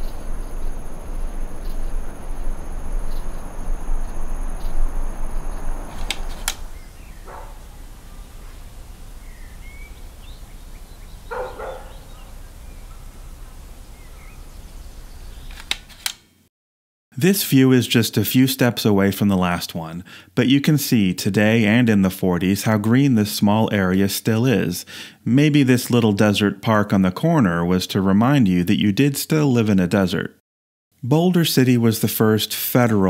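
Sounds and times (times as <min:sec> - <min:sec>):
steady rushing noise: 0:00.0 - 0:15.1
faint high whine: 0:00.0 - 0:15.4
click: 0:06.0 - 0:06.6, 0:15.5 - 0:16.2
bird chirps and calls: 0:06.7 - 0:15.6.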